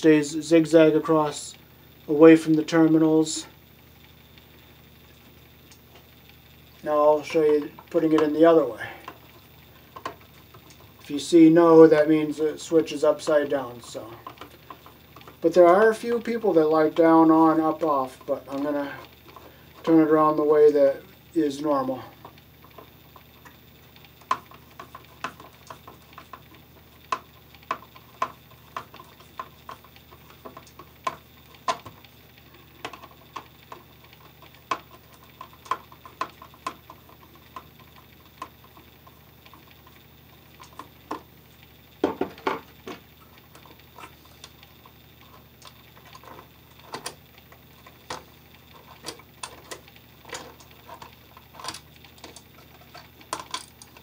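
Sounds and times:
clicks and taps of metal and plastic: 24.2 - 32.0, 32.8 - 38.9, 42.0 - 44.6, 45.3 - 54.0.

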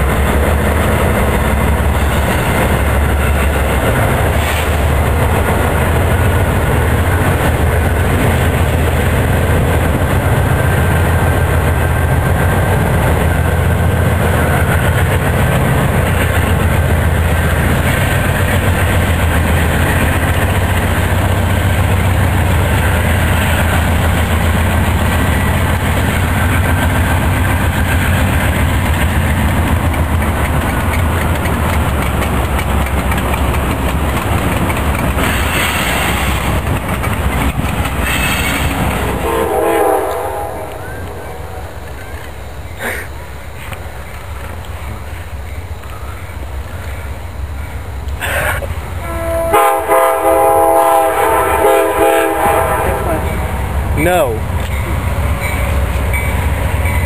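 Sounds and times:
locomotive engines rumbling: 0.0 - 57.0
freight cars clattering over rails: 14.1 - 39.2.

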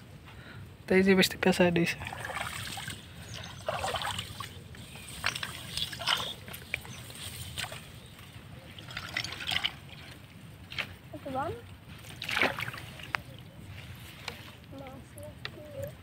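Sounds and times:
small water splashes: 1.9 - 14.0
grass stems rustling: 2.1 - 11.0.

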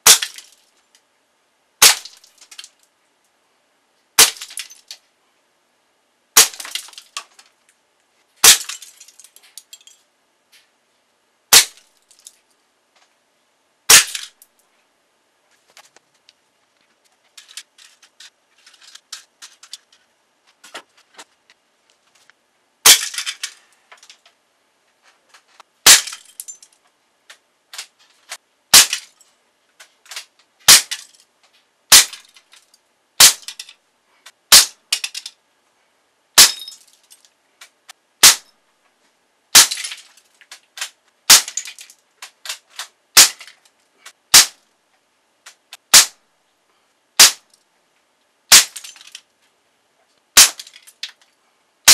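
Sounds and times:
pellets rattling plastic targets: 0.0 - 0.8, 1.8 - 2.8, 4.2 - 5.0, 6.4 - 7.6, 8.4 - 10.0, 11.5 - 12.5, 13.9 - 14.5, 17.2 - 20.9, 22.8 - 24.3, 25.3 - 26.8, 27.7 - 31.3, 31.9 - 33.8, 34.5 - 35.4, 36.4 - 38.5, 39.6 - 44.6, 48.5 - 49.3, 50.4 - 51.3
air gun shots: 1.8 - 2.2, 11.5 - 11.8, 30.7 - 30.9, 31.9 - 32.2, 34.5 - 34.8, 38.2 - 38.5, 41.3 - 41.6, 43.2 - 43.4, 44.4 - 44.6, 45.8 - 46.2, 47.2 - 47.4, 48.5 - 48.8.

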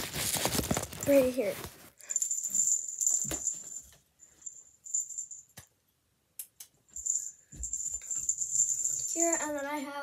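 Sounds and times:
small bell jingling: 2.0 - 5.6, 6.9 - 10.0.

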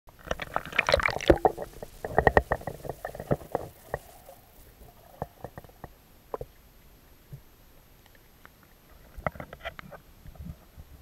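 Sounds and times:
pool water splashing: 0.5 - 5.6.

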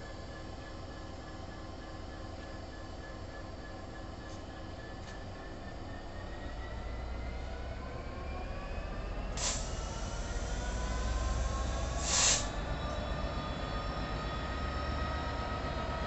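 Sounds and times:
diesel locomotive engine rumble: 0.0 - 16.0
faint rising whines: 0.0 - 16.0
air hisses: 12.0 - 12.5.

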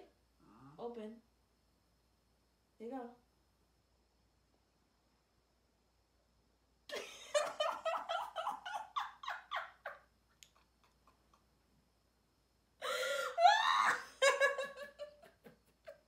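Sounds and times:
woman laughing hard: 6.9 - 10.0, 12.8 - 16.0.

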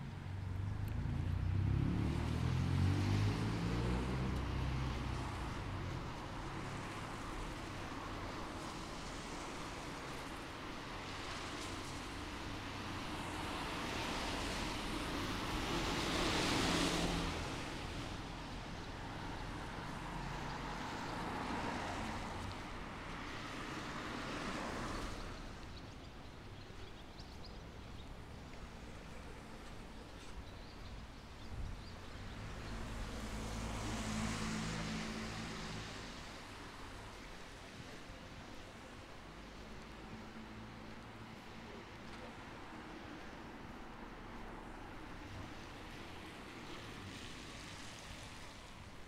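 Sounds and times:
motor vehicle driving past: 0.5 - 5.4, 32.2 - 36.3.

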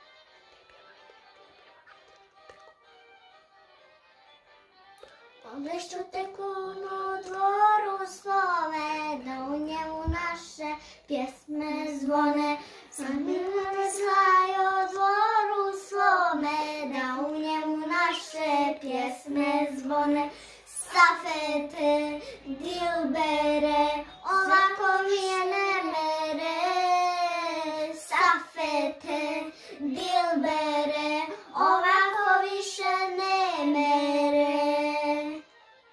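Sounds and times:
girls singing together: 6.4 - 35.4.

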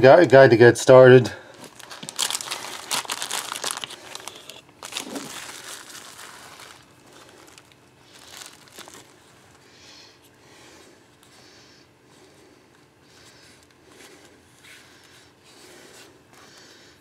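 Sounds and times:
plastic packaging crinkling: 1.5 - 9.6
fabric pouch rustling: 1.7 - 9.5.

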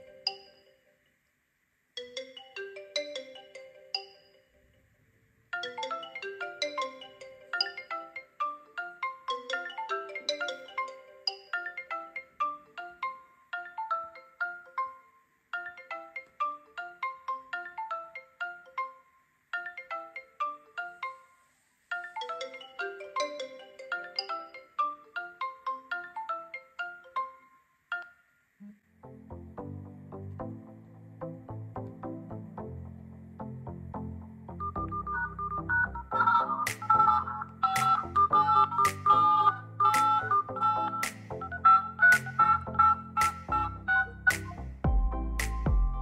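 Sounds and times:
phone ringtones ringing: 2.0 - 4.9, 5.5 - 28.4, 34.6 - 44.5.

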